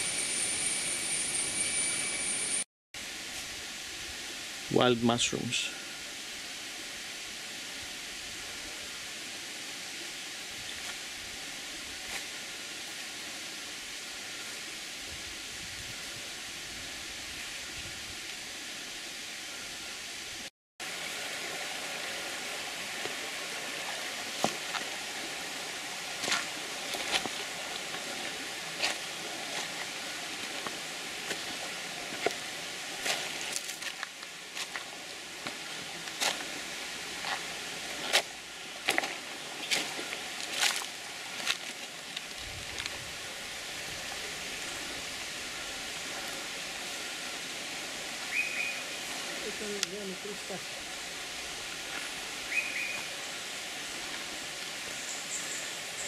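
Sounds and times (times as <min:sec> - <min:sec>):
steady hiss: 0:00.0 - 0:56.0
footsteps crunching on leaves and stones: 0:23.0 - 0:43.2.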